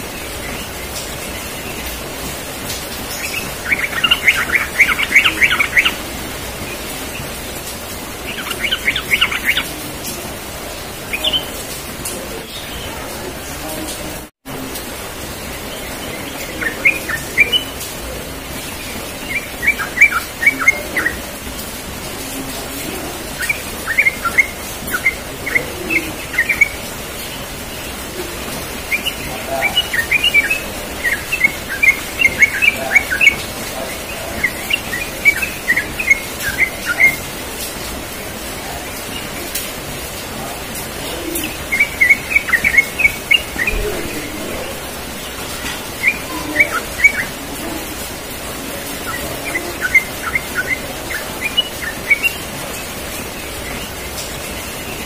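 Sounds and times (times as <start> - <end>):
bird singing rapid chirps: 0.0 - 13.4, 15.1 - 55.0
steady background hiss: 0.0 - 55.0.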